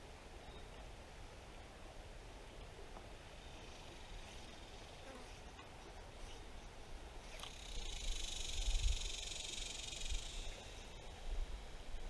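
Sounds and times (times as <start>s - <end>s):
cicada buzzing: 7.5s - 11.0s.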